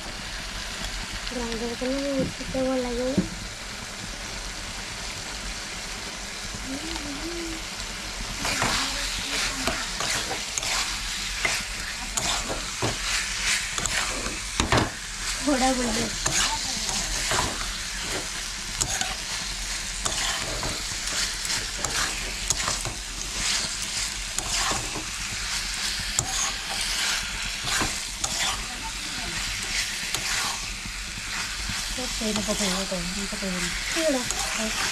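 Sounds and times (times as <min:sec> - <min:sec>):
food sizzling in a pan: 0:00.0 - 0:34.9
metal spatula scraping pan: 0:08.4 - 0:19.4, 0:20.0 - 0:25.1, 0:26.2 - 0:30.7.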